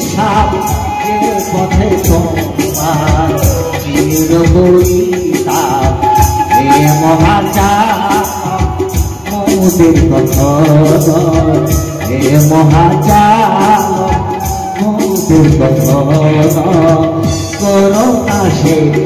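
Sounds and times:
electronic drum pad beat: 0.0 - 19.0
bamboo flute melody: 0.2 - 4.3, 5.8 - 7.8, 11.0 - 15.7.

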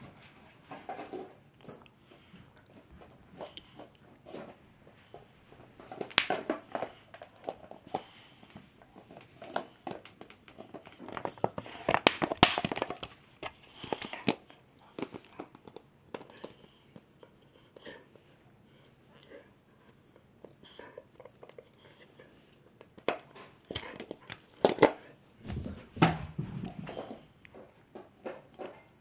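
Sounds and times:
dog chewing plastic bottle: 5.7 - 17.0.

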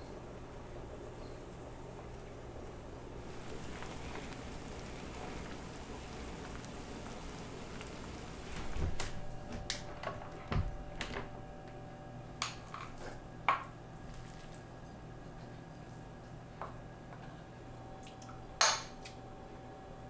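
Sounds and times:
pot of soup simmering: 2.2 - 10.8.

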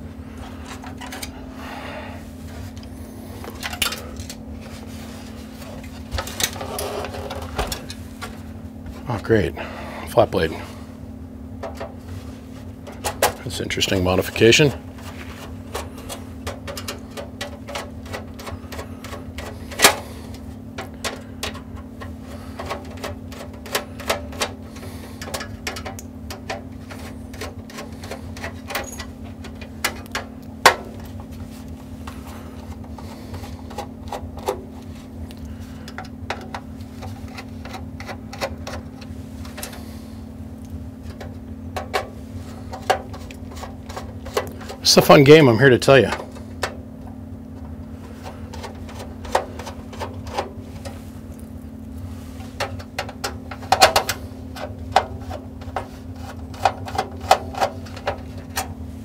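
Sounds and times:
low hum: 0.0 - 59.0
hand tools and metal parts clicking: 12.8 - 31.2.

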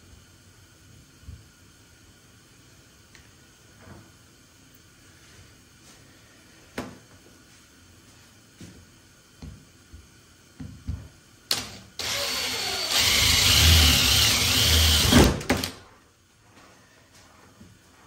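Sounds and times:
cordless drill cutting sheet metal: 11.5 - 15.4.

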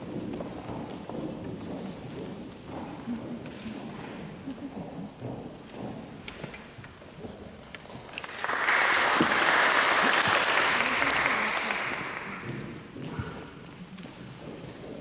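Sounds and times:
audience applauding: 8.1 - 12.7.

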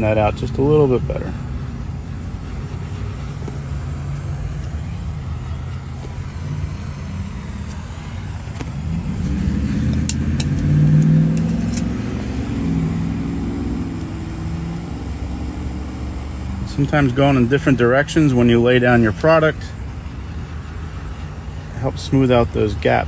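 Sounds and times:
steady low rumble: 0.0 - 23.0
vehicle engine revving: 0.0 - 23.0
sharp clicks: 9.8 - 12.0.

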